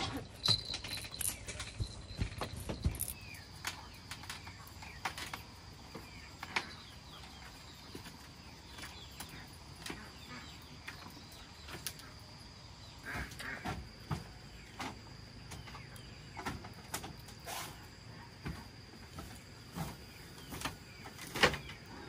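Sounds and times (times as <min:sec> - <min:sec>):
birds chirping: 0:00.0 - 0:17.2.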